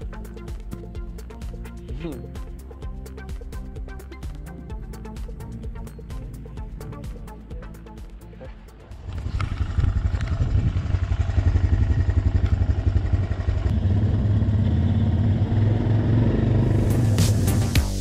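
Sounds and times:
music: 0.0s - 9.6s, 16.5s - 18.0s
quad bike engine puttering: 9.0s - 16.8s.

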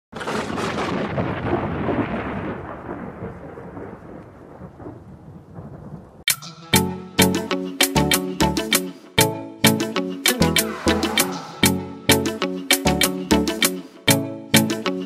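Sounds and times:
crackling thunderclap: 0.1s - 6.3s
music sharp notes: 6.3s - 15.0s.

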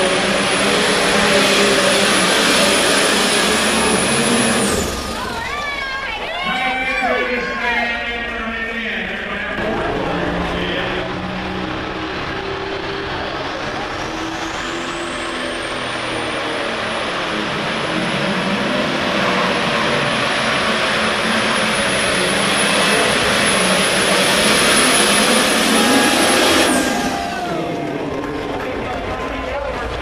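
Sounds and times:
tractor diesel engine at full power: 0.0s - 30.0s.

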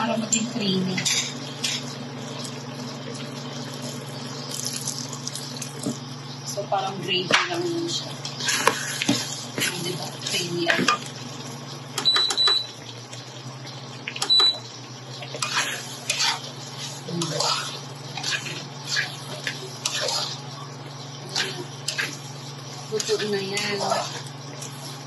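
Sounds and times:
plastic spatula scraping a pan: 8.4s - 10.9s, 15.4s - 20.4s.

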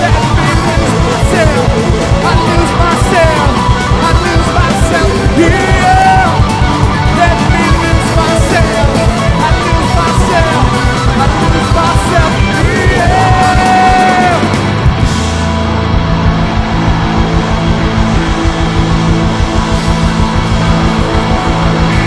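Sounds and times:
person singing: 0.0s - 14.5s
drum kit: 0.0s - 22.0s
electric bass: 0.0s - 22.0s
electric guitar: 0.0s - 22.0s.

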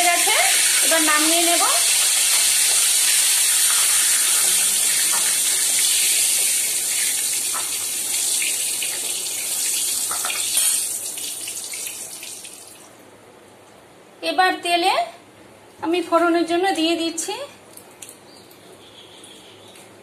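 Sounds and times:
potatoes sizzling in hot oil: 0.0s - 12.0s.

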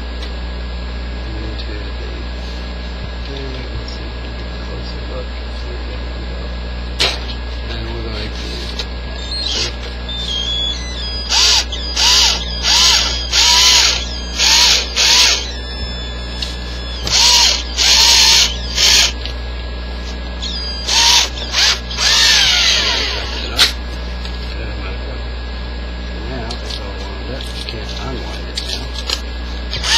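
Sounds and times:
cordless drill motor bursts: 9.1s - 19.3s, 20.2s - 23.6s, 29.0s - 29.9s.

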